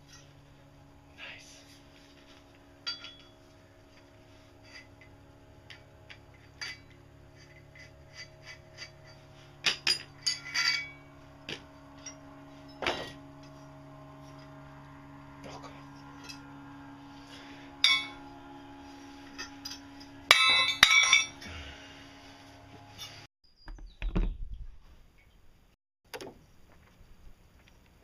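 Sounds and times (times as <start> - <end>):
steady low hum: 0.0 - 23.3
screwdriver clinking on metal: 2.8 - 3.4, 5.7 - 11.0, 19.4 - 21.5.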